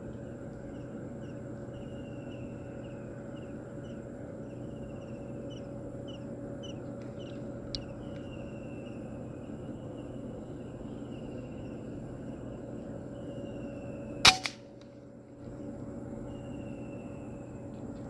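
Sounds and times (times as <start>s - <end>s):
steady low hum: 0.0s - 18.0s
small bird chirping and trilling: 0.7s - 11.9s
sharp click: 14.3s - 14.6s.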